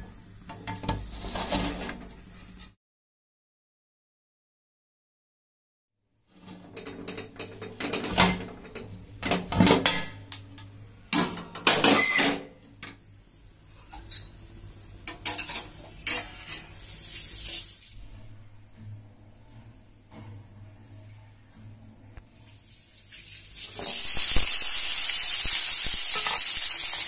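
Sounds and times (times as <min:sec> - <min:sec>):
high hiss: 0:23.8 - 0:27.0.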